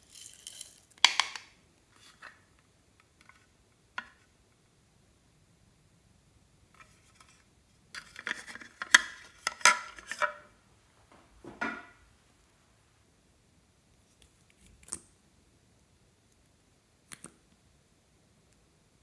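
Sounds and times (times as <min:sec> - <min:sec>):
plastic items clattering on table: 0:08.0 - 0:10.5.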